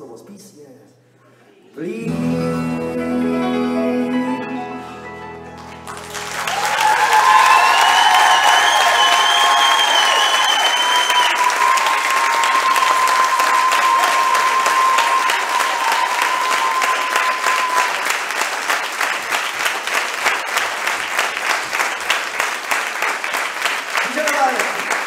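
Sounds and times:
steady high tone: 1.9s - 9.7s
audience applause: 5.6s - 25.0s.

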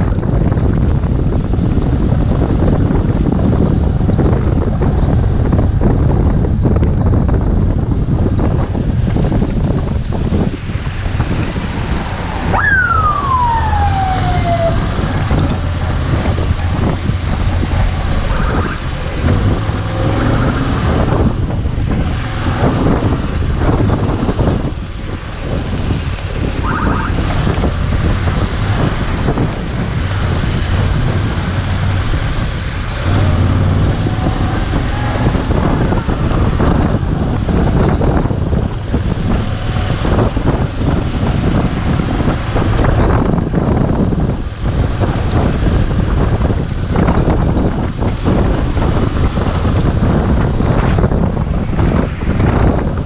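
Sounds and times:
motorcycle engine humming: 0.0s - 53.0s
wind and road noise: 0.0s - 53.0s
high tone falling in pitch: 12.4s - 15.7s.

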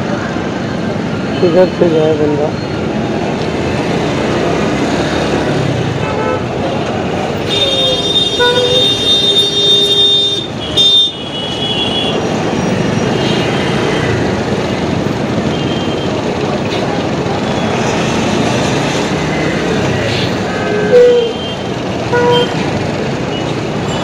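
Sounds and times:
traffic noise: 0.0s - 24.0s
vehicle horn honks: 7.5s - 12.2s.

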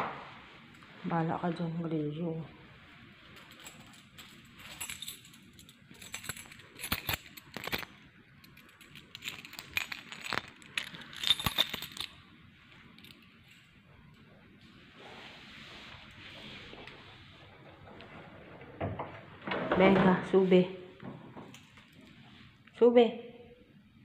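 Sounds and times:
keys jangling: 3.3s - 12.2s.

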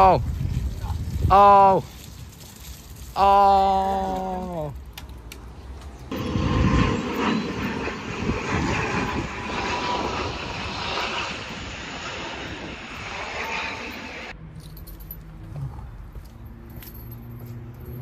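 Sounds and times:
wind buffeting microphone: 0.0s - 3.2s, 6.0s - 14.1s.

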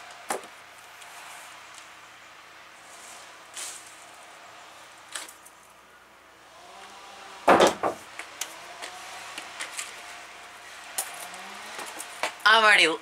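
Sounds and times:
leafy branches rustling: 0.0s - 13.0s
crash of leaves and twigs: 2.8s - 4.2s.

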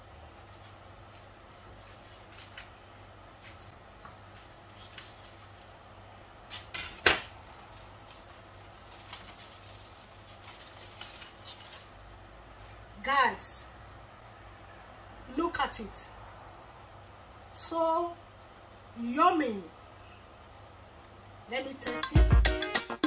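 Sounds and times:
foil crinkling: 0.0s - 5.8s, 6.5s - 12.0s.

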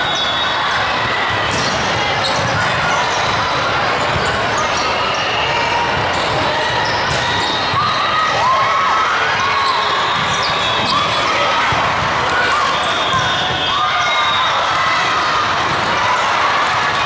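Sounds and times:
sneakers squeaking on court: 9.6s - 11.4s.

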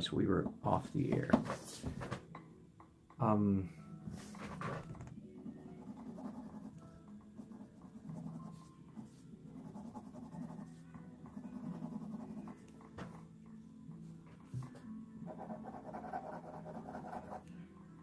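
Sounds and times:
drawing tool scratching on paper: 5.8s - 6.8s, 7.4s - 12.6s, 15.3s - 17.5s.

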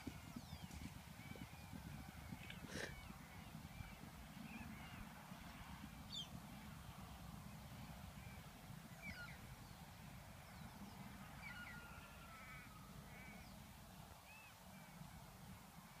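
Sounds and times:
faint bird calls: 0.0s - 5.1s.

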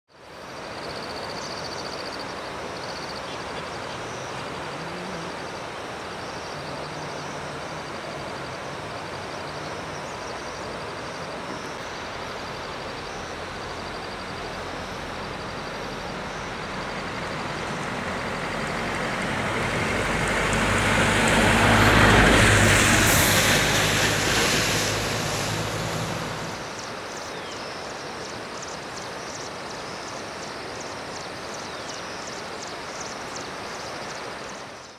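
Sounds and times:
flood river rushing: 0.2s - 34.9s
vehicle engine passing: 16.7s - 26.7s.

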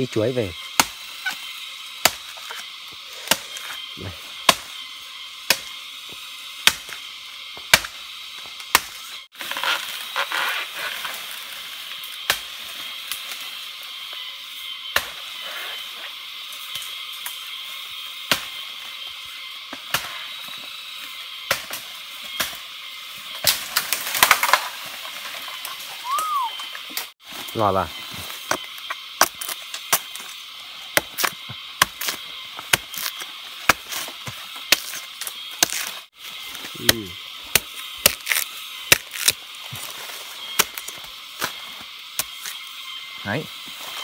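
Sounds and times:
blade chopping plant stalks: 0.7s - 3.8s, 4.4s - 4.8s, 5.4s - 13.4s, 19.7s - 25.9s, 28.1s - 42.6s.

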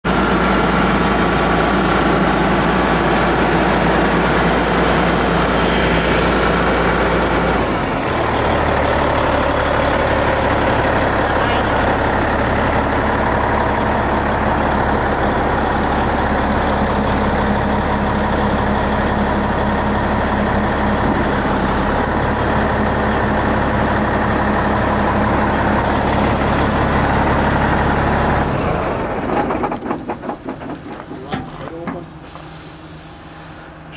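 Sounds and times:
diesel truck engine running: 0.0s - 33.9s
short hiss: 32.2s - 33.5s.

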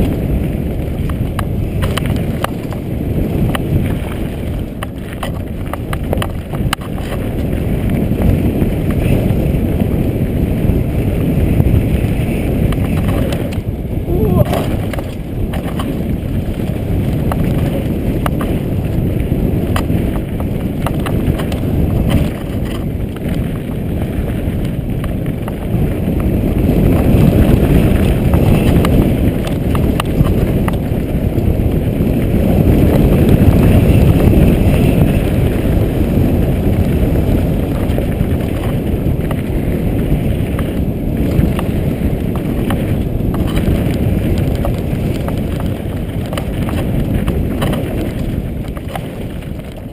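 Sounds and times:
bike rattling: 0.0s - 49.9s
wind rushing over microphone: 0.0s - 49.9s
tyres crunching on stones: 12.7s - 25.7s, 40.5s - 49.9s.

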